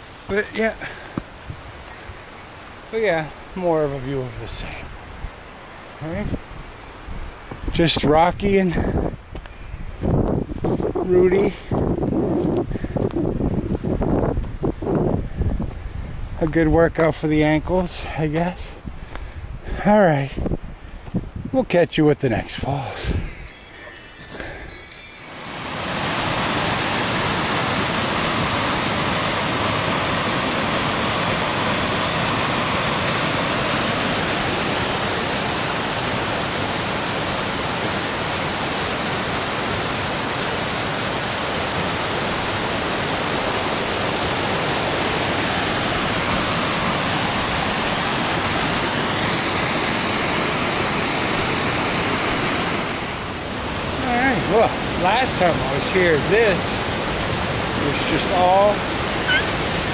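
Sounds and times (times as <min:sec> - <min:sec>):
waterfall rushing over rocks: 0:00.0 - 0:04.7, 0:22.8 - 0:59.9.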